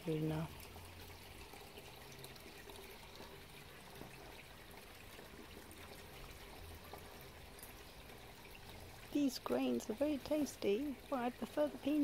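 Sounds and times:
faint trickling water: 0.0 - 12.0.

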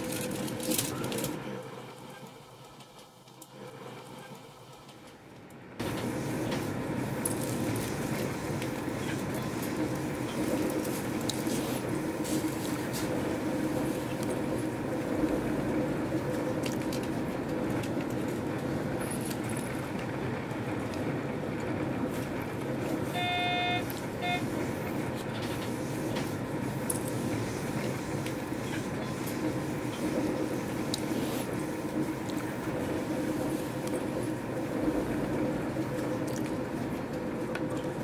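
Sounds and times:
train horn toots: 23.1 - 24.5.

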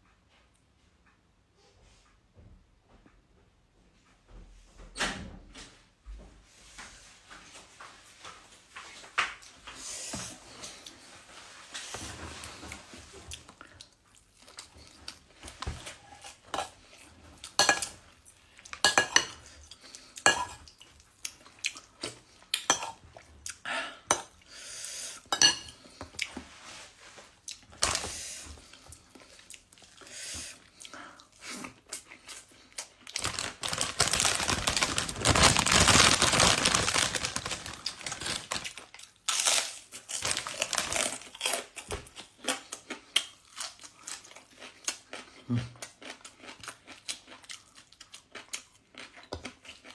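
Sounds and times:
ceramic plate clinking and scraping: 25.4 - 25.8
dense crackling noise: 33.2 - 38.6.

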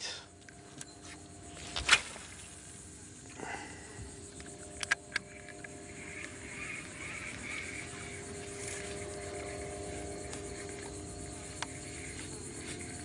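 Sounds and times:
faint steady hum: 0.0 - 13.0
tackle and boat clicks: 4.3 - 7.5.

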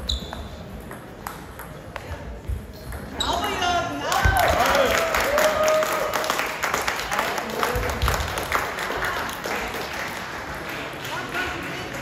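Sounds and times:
spectators clapping in a hall: 4.1 - 12.0.

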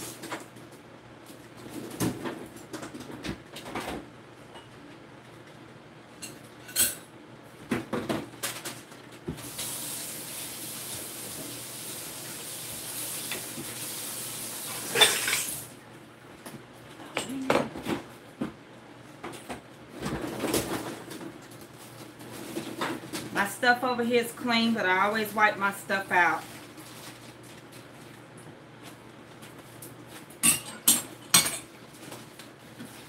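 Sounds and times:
dishes and utensils clattering: 6.2 - 7.1, 14.8 - 15.5, 30.4 - 31.7.

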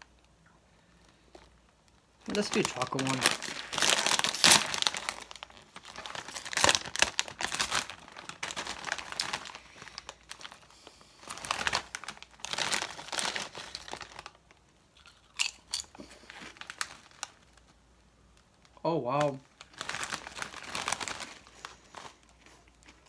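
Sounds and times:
chip bag tearing and crinkling: 2.2 - 17.7, 18.6 - 23.0
potato chip crunching: 2.3 - 10.7, 11.3 - 17.5.

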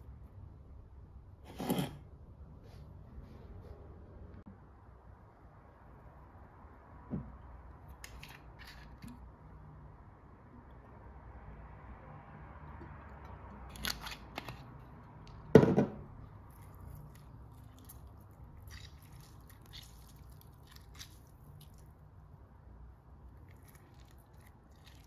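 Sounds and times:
lemon squeezed by hand: 16.5 - 21.8.

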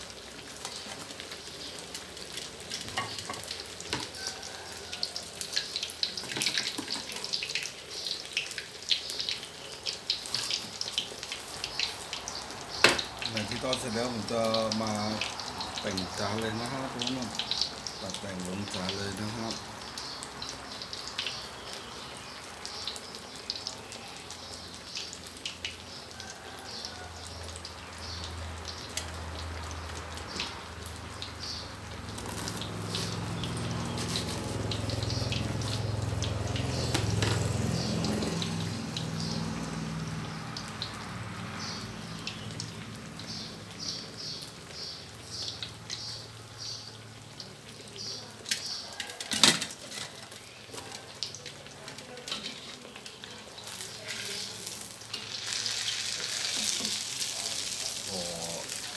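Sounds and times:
food deep-frying in hot oil: 0.0 - 58.9.

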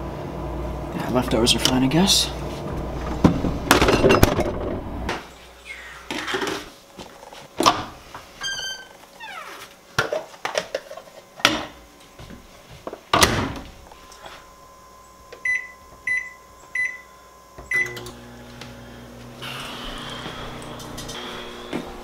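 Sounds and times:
microwave humming: 0.0 - 6.9, 7.6 - 22.0
keypad beeps: 15.4 - 17.1, 17.7 - 18.0.

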